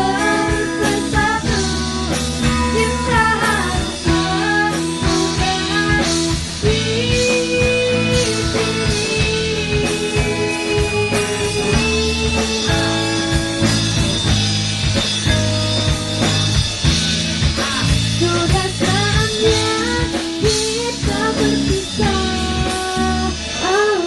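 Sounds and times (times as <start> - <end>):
woman singing: 0.0 - 13.2, 17.6 - 24.0
guitar and drums accompaniment: 0.0 - 24.0.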